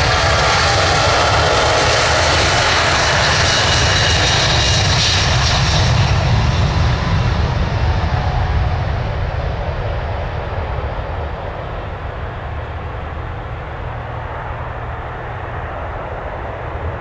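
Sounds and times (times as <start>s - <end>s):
jet engines roaring: 0.0s - 17.0s.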